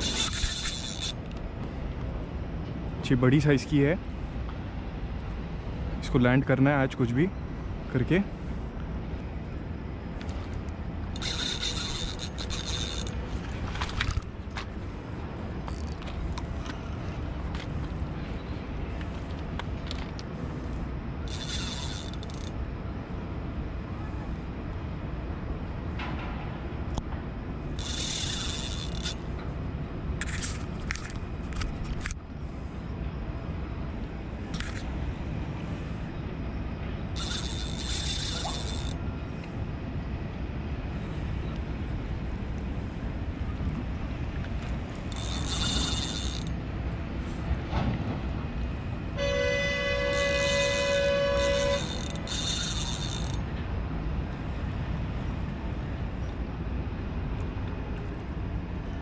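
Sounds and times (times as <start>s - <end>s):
fishing reel drag buzzing: 0.0s - 1.4s, 11.1s - 14.3s, 21.2s - 22.6s, 27.7s - 29.3s, 37.1s - 39.0s, 44.8s - 46.6s, 49.2s - 53.5s
horn sounding: 49.2s - 52.0s.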